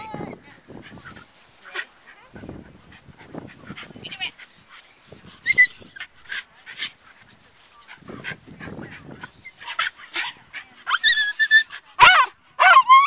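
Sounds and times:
dog whining and yipping: 4.4s - 6.9s, 9.2s - 9.9s, 10.9s - 13.0s.

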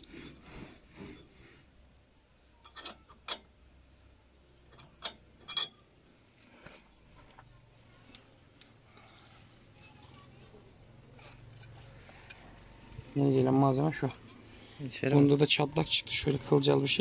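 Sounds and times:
metal clinks and knocks: 2.6s - 3.5s, 4.7s - 6.0s, 13.8s - 14.6s.

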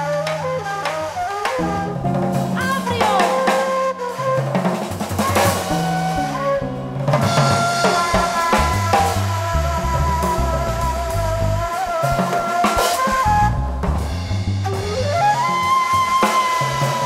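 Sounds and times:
electric bass notes: 0.0s - 16.2s
drum kit: 0.0s - 17.0s
end-blown flute melody: 0.0s - 17.0s.

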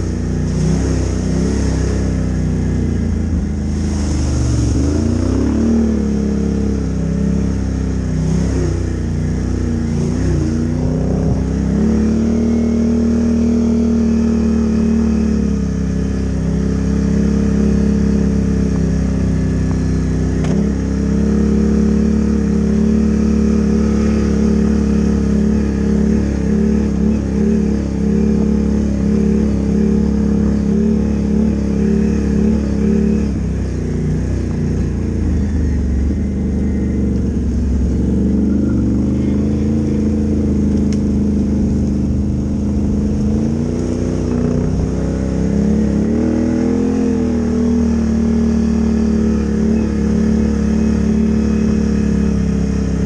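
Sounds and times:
atv engine revving: 0.0s - 53.0s
water splashing: 3.5s - 5.8s.

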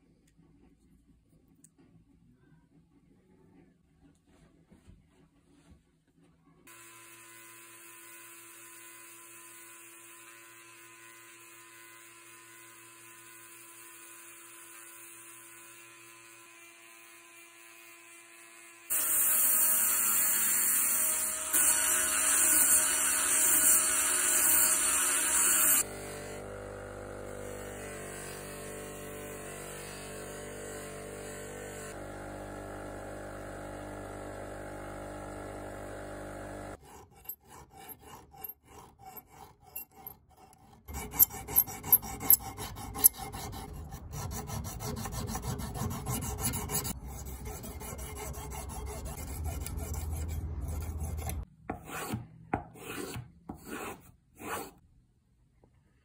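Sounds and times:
bench buffer motor running: 23.9s - 36.8s
sharpening stone rasping on knife: 36.8s - 52.2s, 52.8s - 54.8s.

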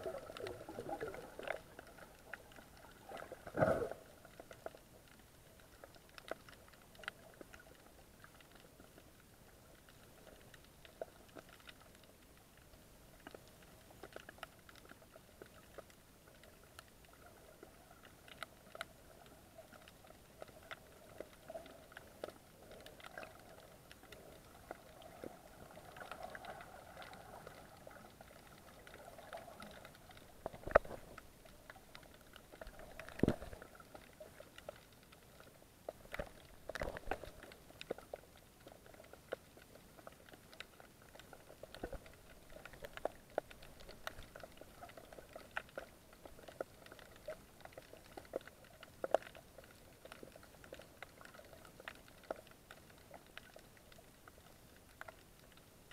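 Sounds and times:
underwater crackle of clicks: 0.0s - 55.9s.

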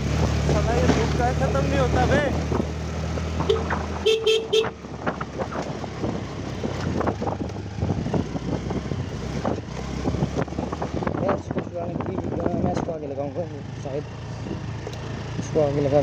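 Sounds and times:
horn toots: 3.4s - 4.8s.

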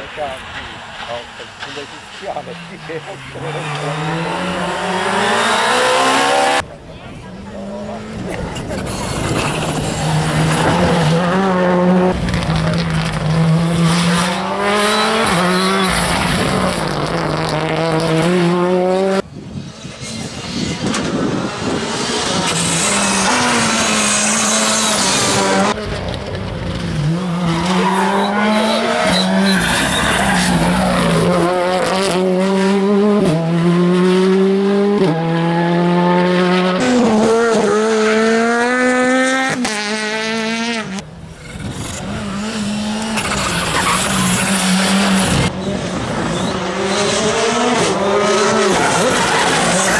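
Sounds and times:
rally car engines revving: 0.0s - 49.9s
tyre squeal: 14.8s - 16.4s, 27.6s - 31.2s, 43.2s - 44.9s.

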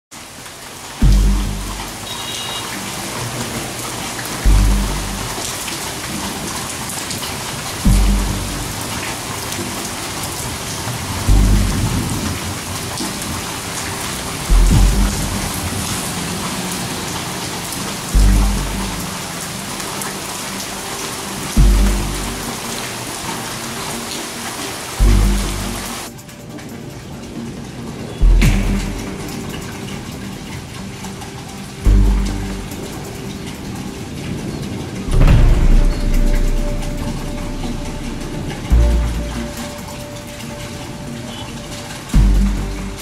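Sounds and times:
steady rain hiss: 0.1s - 43.0s
deep bass note: 1.0s - 2.0s, 4.4s - 5.4s, 7.8s - 8.8s, 11.2s - 12.2s, 14.5s - 15.7s, 18.2s - 19.0s, 21.6s - 22.5s, 25.0s - 26.0s, 28.2s - 29.2s, 31.9s - 32.9s, 35.1s - 39.8s, 42.1s - 43.0s.

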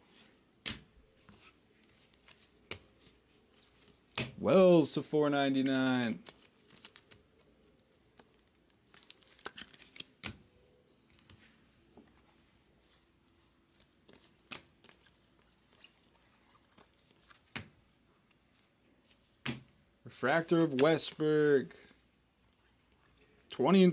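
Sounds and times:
cards flicking and sliding: 0.6s - 3.2s, 14.1s - 17.8s.

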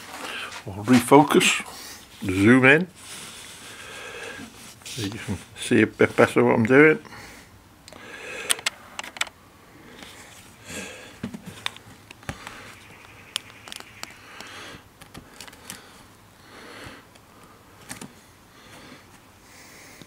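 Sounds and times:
camera clicks and taps: 8.5s - 9.3s.

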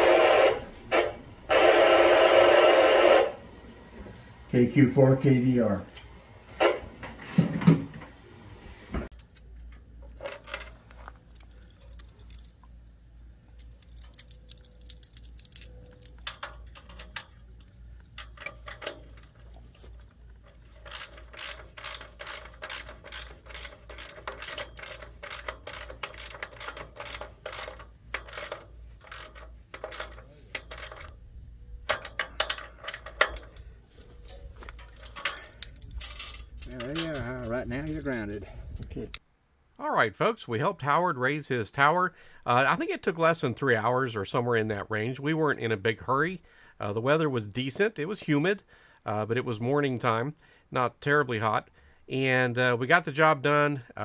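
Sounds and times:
ratchet wrench clicking: 10.4s - 12.6s, 13.6s - 19.4s, 20.4s - 31.2s, 35.0s - 38.2s.

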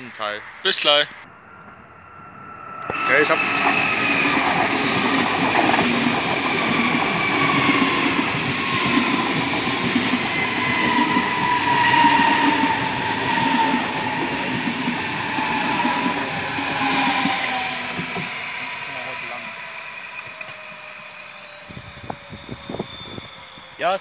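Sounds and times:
train whine dropping in pitch: 0.0s - 24.0s
train wheels clattering on rails: 3.6s - 19.5s.

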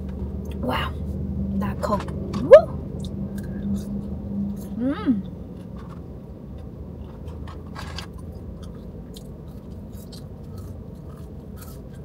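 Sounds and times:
chewing food: 5.5s - 12.0s.

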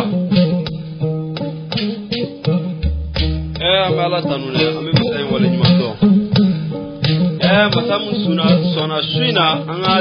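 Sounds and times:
plucked string notes: 0.0s - 10.0s
deep bass note: 2.6s - 4.3s.

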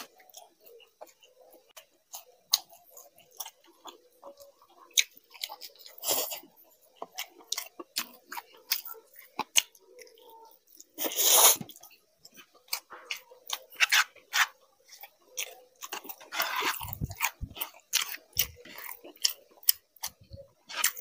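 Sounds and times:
man chewing food: 0.0s - 21.0s.

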